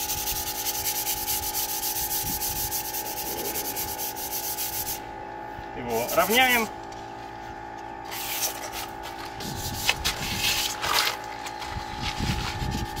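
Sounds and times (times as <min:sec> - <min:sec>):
sandpaper scratching on metal: 0:00.0 - 0:05.0, 0:05.9 - 0:06.7, 0:08.1 - 0:10.8, 0:12.0 - 0:13.0.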